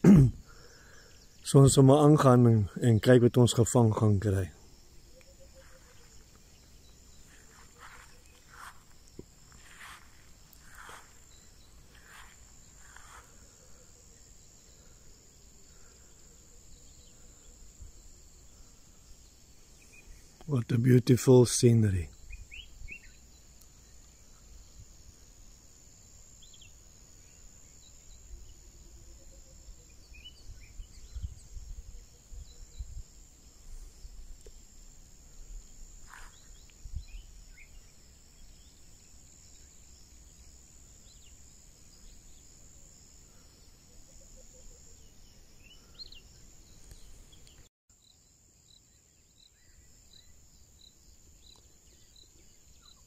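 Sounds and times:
regular chirping: 2.8 - 14.8
high-pitched insect drone: 4.3 - 20.4
bird chirps: 5.0 - 8.8, 22.1 - 23.4
wind rumble on microphone: 30.4 - 33.2.

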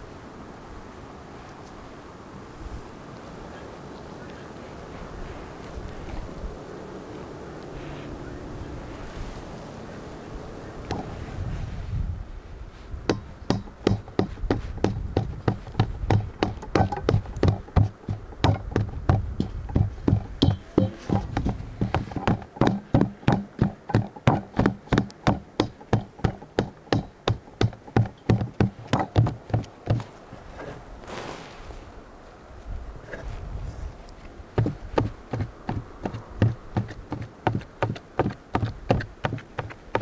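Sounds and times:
wooden pole pounding meat in bowl: 13.1 - 30.0, 34.6 - 40.0.

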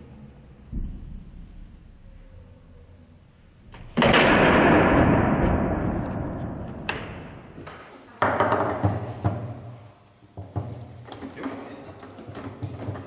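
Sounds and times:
ball and rods clacking: 6.9 - 9.8, 10.4 - 13.0.

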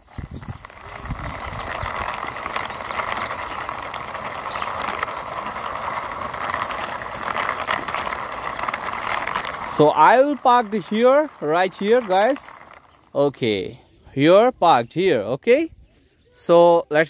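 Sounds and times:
toy car wheels rolling on concrete: 0.0 - 14.4.

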